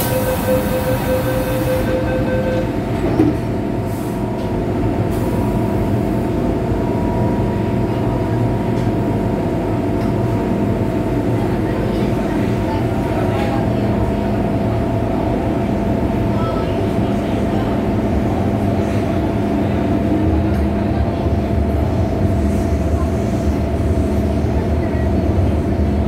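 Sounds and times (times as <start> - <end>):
rapid warning beeps: 0.0 - 2.8
train equipment hum: 0.0 - 26.0.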